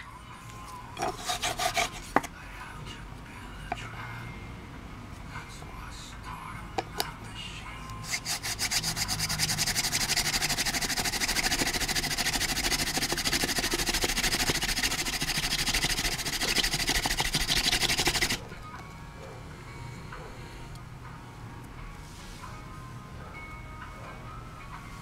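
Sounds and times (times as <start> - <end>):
wooden drill rasping into wood: 1.0 - 2.3, 8.0 - 18.4.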